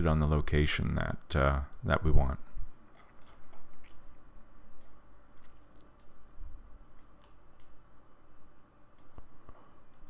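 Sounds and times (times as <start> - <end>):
low steady hum: 0.0 - 10.0
computer mouse clicking: 2.9 - 4.1, 6.9 - 7.8, 8.9 - 9.6.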